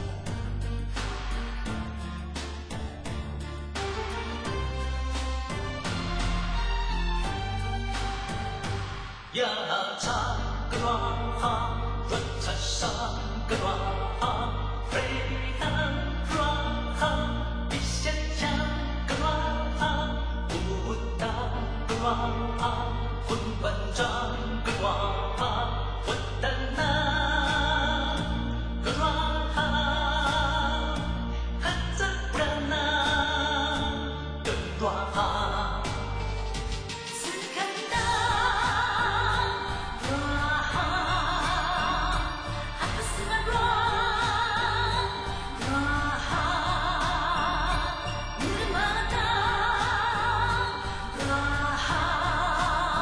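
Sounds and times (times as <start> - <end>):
low steady accompaniment: 0.0 - 9.2
song with singing and beat: 0.0 - 53.0.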